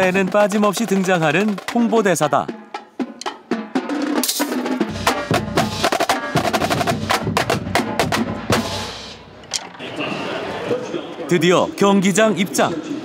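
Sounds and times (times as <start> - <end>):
snare and tenor drums playing: 0.0 - 9.5
deeper drum hits: 3.6 - 9.4.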